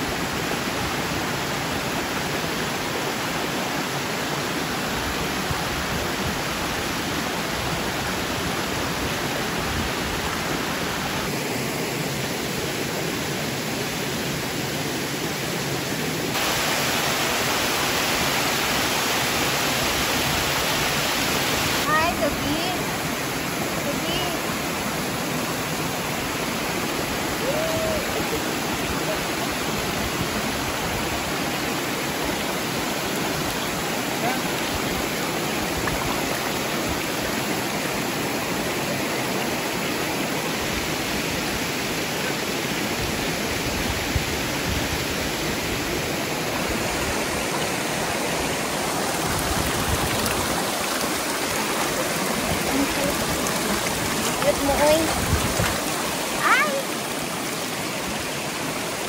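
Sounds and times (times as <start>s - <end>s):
waterfall rushing: 0.0s - 59.0s
water splashing over rocks: 16.2s - 42.9s, 45.0s - 59.0s.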